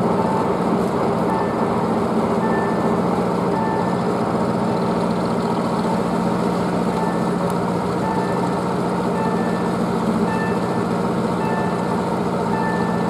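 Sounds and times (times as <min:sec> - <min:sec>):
heavy machinery drone: 0:00.0 - 0:13.0
high electronic warning beeps: 0:01.3 - 0:01.7, 0:02.4 - 0:02.8, 0:03.5 - 0:04.0, 0:07.0 - 0:07.4, 0:08.0 - 0:08.5, 0:09.1 - 0:11.9, 0:12.5 - 0:13.0.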